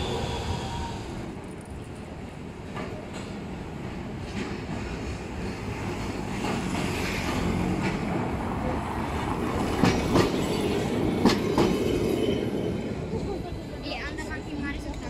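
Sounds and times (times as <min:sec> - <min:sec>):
tram rumbling past: 0:00.0 - 0:15.0
wheels clacking over rail joints: 0:02.6 - 0:12.6.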